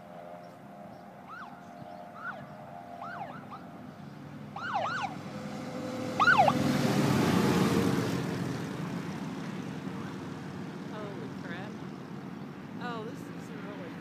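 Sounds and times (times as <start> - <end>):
motorcycles passing: 0.0 - 14.0
siren whoops: 1.3 - 3.7, 4.6 - 5.2, 6.2 - 6.6.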